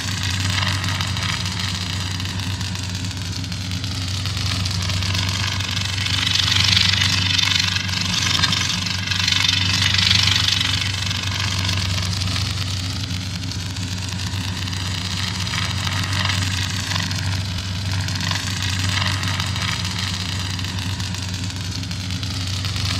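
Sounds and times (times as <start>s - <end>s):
lightsaber humming and crackling: 0.0s - 22.9s.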